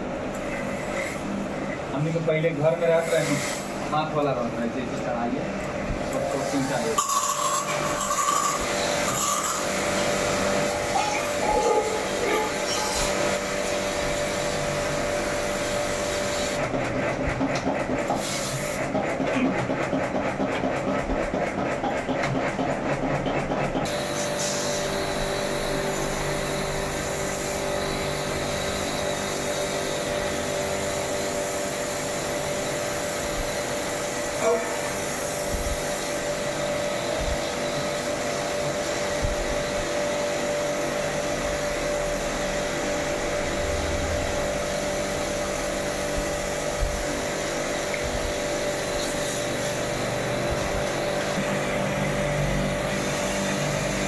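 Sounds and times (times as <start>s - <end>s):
pressure-washer pump running: 0.0s - 54.0s
water jet hissing: 2.6s - 4.0s, 6.2s - 16.6s, 18.1s - 18.8s, 23.9s - 39.0s, 42.4s - 54.0s.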